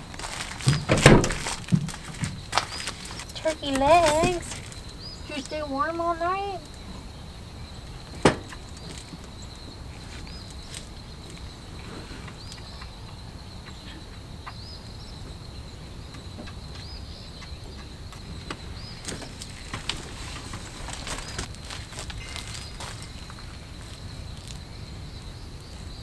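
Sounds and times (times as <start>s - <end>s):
high insect drone: 0.0s - 26.0s
bird chirps: 2.2s - 19.1s.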